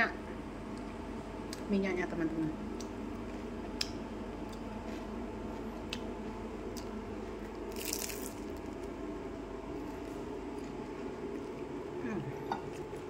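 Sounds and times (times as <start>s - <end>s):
crunching bites of crispy food: 6.7s - 9.0s.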